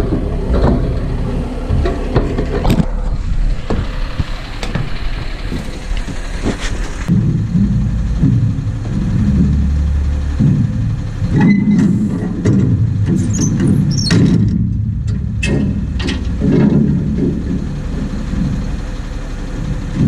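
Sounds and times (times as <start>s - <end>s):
wind buffeting microphone: 0.0s - 20.0s
sharp knocks: 7.0s - 20.0s.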